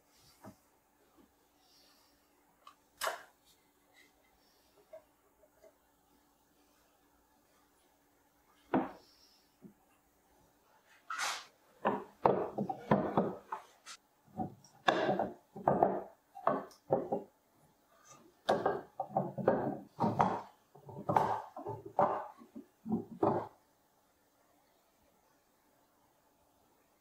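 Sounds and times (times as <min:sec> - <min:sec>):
wooden strips clacking and scraping: 0:18.4 - 0:23.5.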